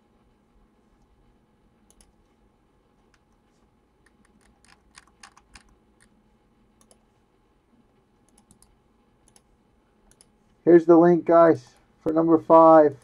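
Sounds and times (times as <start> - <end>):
faint keyboard typing: 1.8 - 7.2, 7.9 - 10.6.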